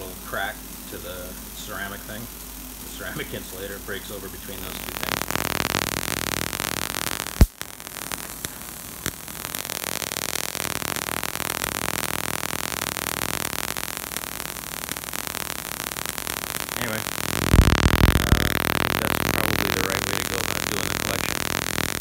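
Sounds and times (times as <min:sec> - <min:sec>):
high-voltage crackling hiss: 0:03.2 - 0:22.0
sharp electric snap: 0:04.8 - 0:22.0.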